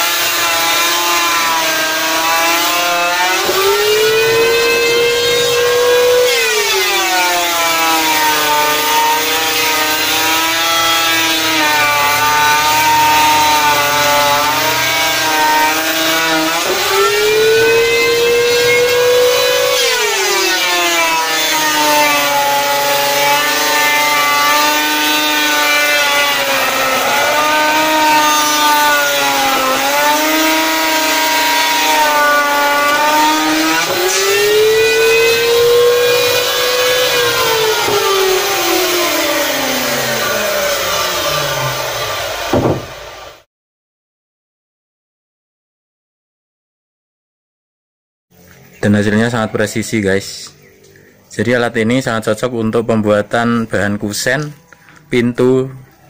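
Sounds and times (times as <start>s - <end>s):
electric planer shaving board: 0.0s - 43.5s.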